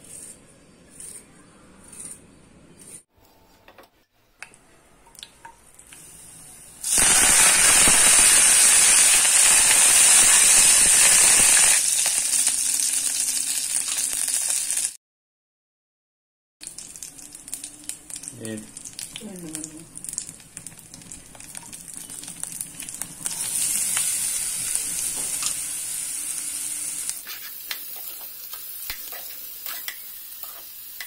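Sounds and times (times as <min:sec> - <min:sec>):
leaves and garlic sputtering in oil: 0:16.6 - 0:31.0.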